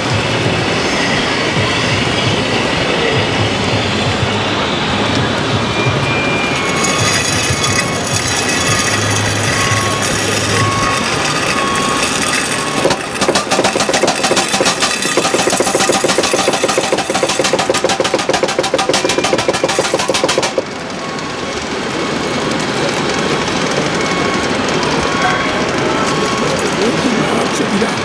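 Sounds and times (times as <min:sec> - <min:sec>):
background din: 0:06.5 - 0:20.9
model forklift mechanical rattle: 0:06.5 - 0:28.0.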